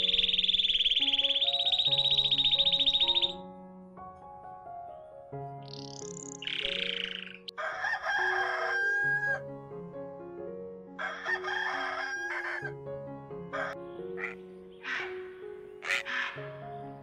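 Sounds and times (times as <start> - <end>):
soft background music: 0.0 - 17.0
rooster crowing: 7.5 - 9.4, 11.0 - 12.8, 13.5 - 14.3.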